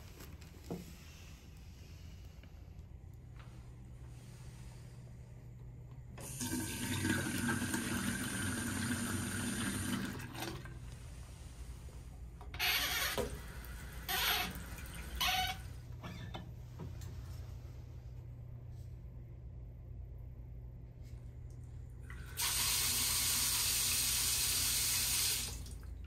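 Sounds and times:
tap water running into sink: 6.2s - 10.7s, 22.1s - 25.8s.

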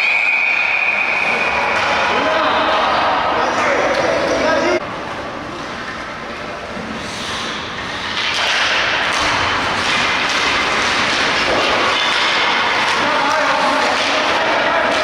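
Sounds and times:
hockey stick and puck knocks: 8.0s - 15.0s.

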